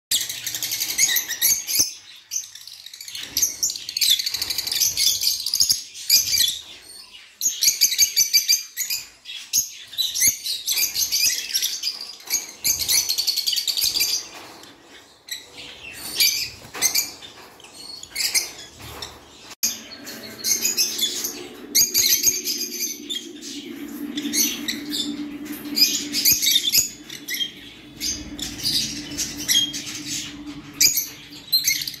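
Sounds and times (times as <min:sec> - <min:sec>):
lovebirds chirping: 0:15.3 - 0:32.0
low hum: 0:19.6 - 0:32.0.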